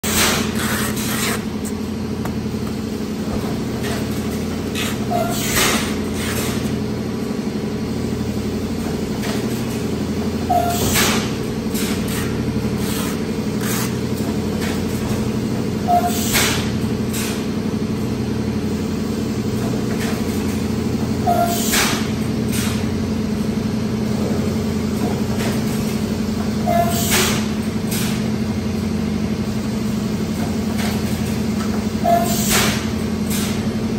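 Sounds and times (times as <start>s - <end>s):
machine humming: 0.0s - 15.9s.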